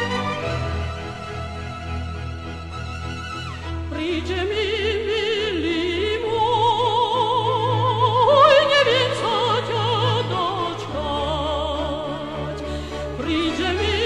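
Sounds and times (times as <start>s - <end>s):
orchestral accompaniment: 0.0s - 14.0s
woman singing opera: 3.9s - 14.0s.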